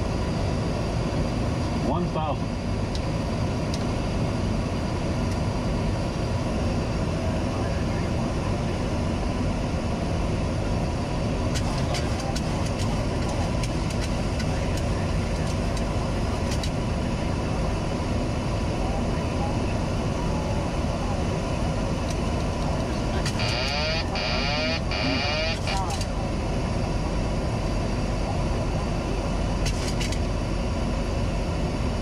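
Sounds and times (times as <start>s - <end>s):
warbling warning wail: 23.3s - 25.8s.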